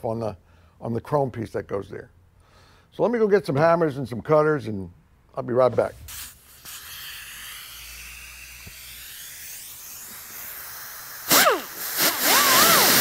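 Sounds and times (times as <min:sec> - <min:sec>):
pneumatic cut-off tool whine: 0:06.0 - 0:13.0.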